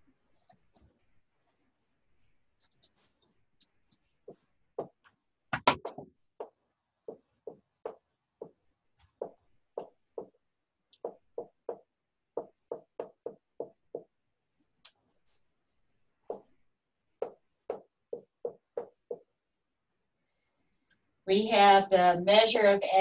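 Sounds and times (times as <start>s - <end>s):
pen tapping on hard surface: 5.6s - 8.6s, 9.2s - 10.3s, 12.4s - 14.1s, 17.2s - 19.2s.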